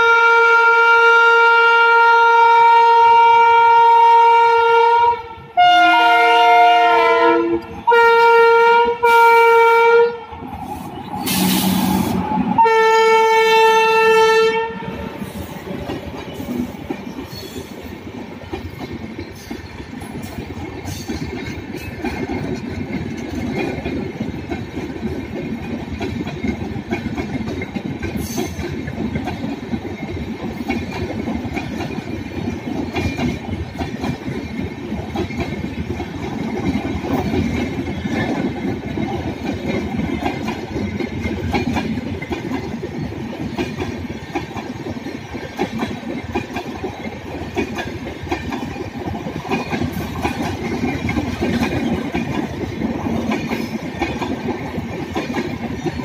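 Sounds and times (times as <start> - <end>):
locomotive horn blasts: 0.0 - 10.4, 11.6 - 15.4
rush of passing locomotive: 0.0 - 56.0
train coaches rumbling: 0.0 - 56.0
wheels clicking over rail joints: 15.2 - 56.0.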